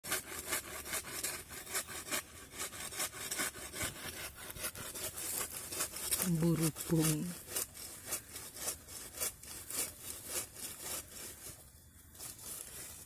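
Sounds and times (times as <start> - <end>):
dry leaves rustling when raked: 2.9 - 13.0.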